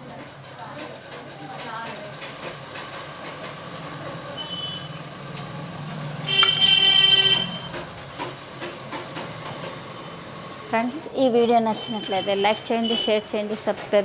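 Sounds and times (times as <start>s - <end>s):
vehicle horn honk: 4.4s - 5.0s, 6.3s - 7.7s.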